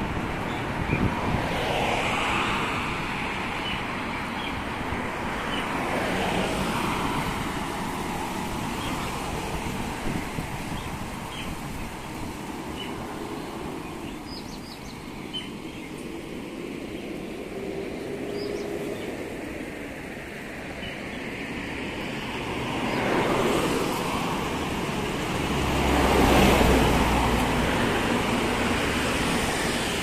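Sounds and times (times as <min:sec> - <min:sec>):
heavy vehicle passing: 0:00.0 - 0:30.0
road traffic passing: 0:00.0 - 0:30.0.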